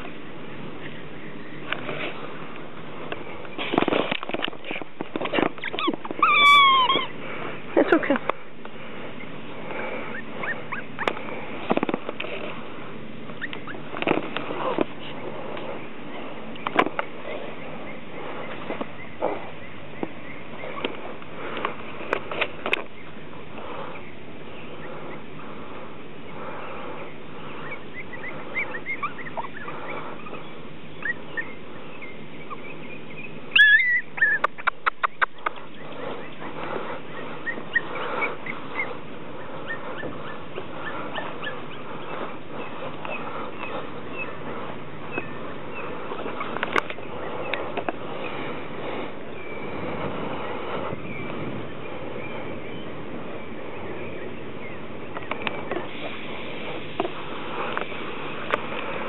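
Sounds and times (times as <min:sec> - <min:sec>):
background hiss: 0:00.0 - 0:59.0
sharp clicks and rustles: 0:01.6 - 0:06.3, 0:10.9 - 0:17.2, 0:20.0 - 0:23.9, 0:37.6 - 0:48.5
puppies squeaking: 0:04.6 - 0:07.2, 0:09.0 - 0:11.4, 0:13.2 - 0:15.2, 0:27.5 - 0:49.9
puppy yipping: 0:05.4 - 0:07.2, 0:10.1 - 0:11.2, 0:13.4 - 0:13.9, 0:27.7 - 0:30.4, 0:31.0 - 0:31.6, 0:33.5 - 0:35.7, 0:37.2 - 0:42.2.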